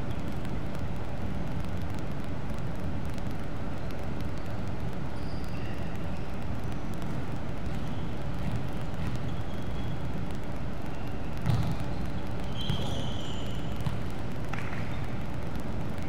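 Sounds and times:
sneaker squeaks on wooden court: 0:11.4 - 0:14.0.

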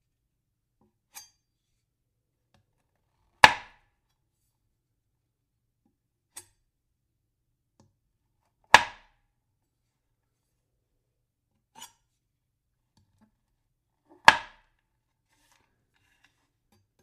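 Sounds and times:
knife chopping into wood: 0:03.4 - 0:03.8, 0:08.7 - 0:09.1, 0:14.2 - 0:14.7.

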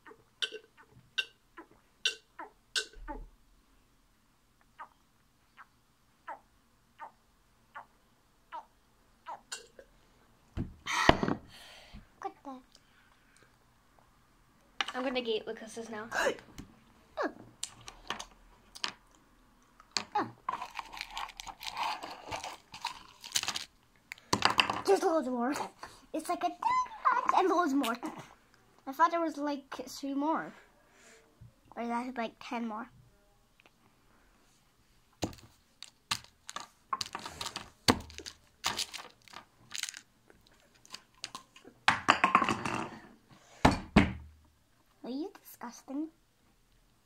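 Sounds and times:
candy wrapper crinkling: 0:20.5 - 0:23.8, 0:35.2 - 0:41.6.

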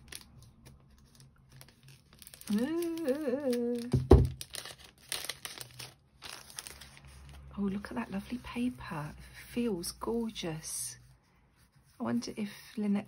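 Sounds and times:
cellophane bag crinkling: 0:00.0 - 0:07.5
woman humming: 0:02.5 - 0:03.9.

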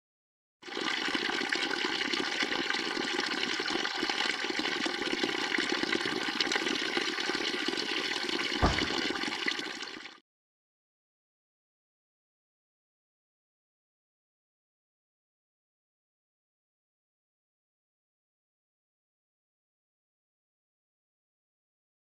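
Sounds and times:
water pouring from pipe spout: 0:00.6 - 0:10.2
low thump: 0:08.6 - 0:09.3.

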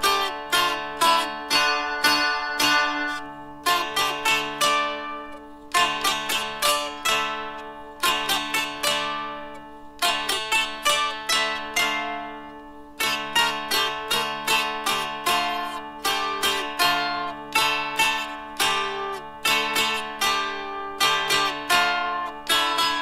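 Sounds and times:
dulcimer plucked and strummed: 0:00.0 - 0:23.0.

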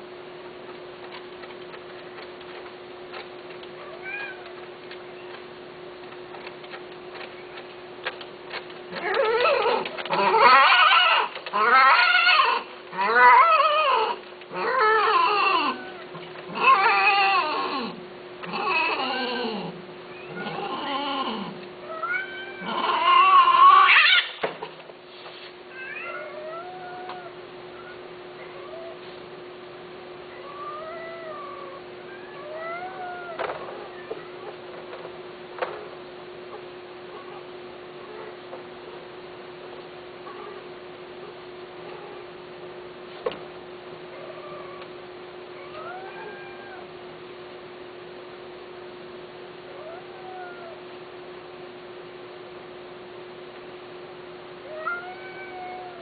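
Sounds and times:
cats yowling: 0:03.7 - 0:05.4, 0:08.9 - 0:24.4, 0:25.7 - 0:29.2, 0:30.2 - 0:34.7, 0:36.5 - 0:38.4, 0:40.2 - 0:42.4, 0:44.1 - 0:47.1, 0:49.6 - 0:51.0, 0:54.6 - 0:56.0.

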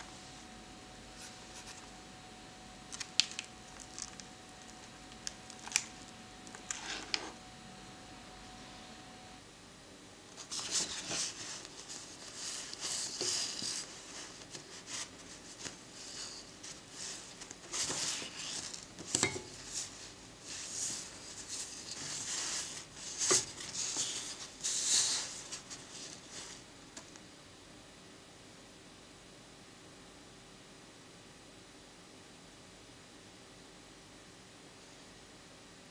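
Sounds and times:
photo prints rustling: 0:02.9 - 0:07.4, 0:10.4 - 0:26.7.

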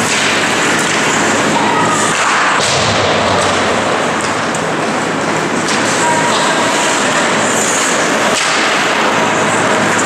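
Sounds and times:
sharp knocks of stick or puck: 0:00.0 - 0:03.6, 0:08.3 - 0:08.9
echoing arena noise: 0:00.0 - 0:10.0
skate blades scraping ice: 0:04.0 - 0:10.0.

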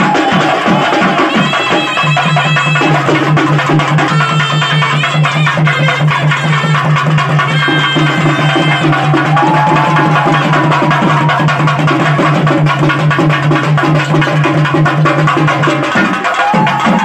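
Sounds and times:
fast drumming: 0:00.0 - 0:17.0.

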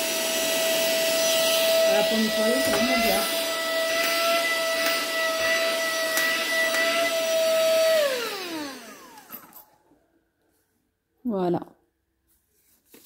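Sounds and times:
handheld vacuum cleaner whine: 0:00.0 - 0:09.9.

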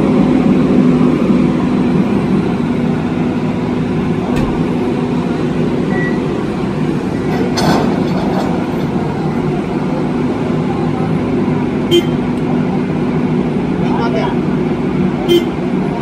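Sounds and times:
diesel engine running: 0:00.0 - 0:16.0
metallic clank: 0:07.3 - 0:09.0.

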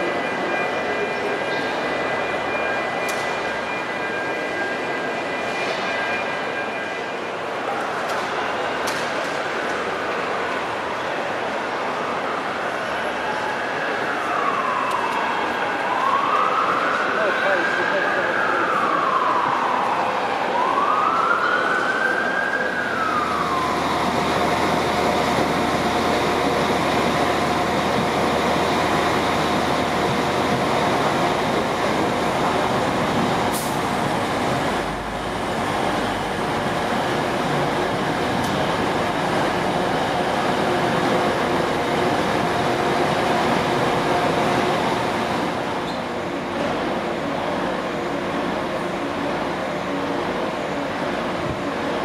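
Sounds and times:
siren wailing: 0:13.3 - 0:35.1
diesel train engine hum: 0:22.8 - 0:52.0.

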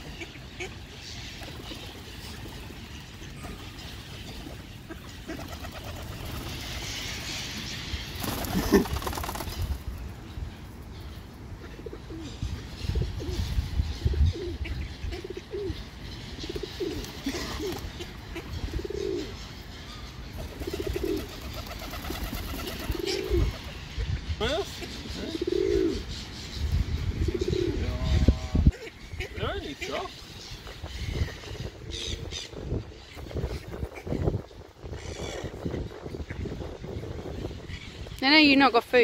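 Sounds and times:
pigeons cooing: 0:03.4 - 0:07.6, 0:08.2 - 0:09.5, 0:11.6 - 0:19.6, 0:20.4 - 0:26.2, 0:27.1 - 0:30.2.

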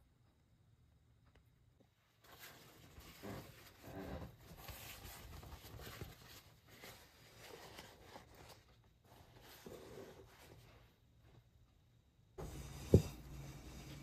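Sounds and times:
rustling and scraping: 0:02.1 - 0:11.5.

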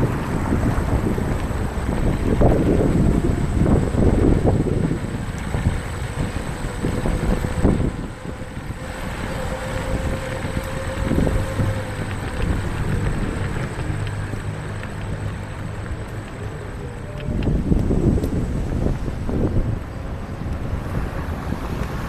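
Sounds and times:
faint steady whine: 0:00.0 - 0:21.1
scooter rolling on pavement: 0:00.0 - 0:22.0
wind noise on microphone: 0:00.0 - 0:22.0.

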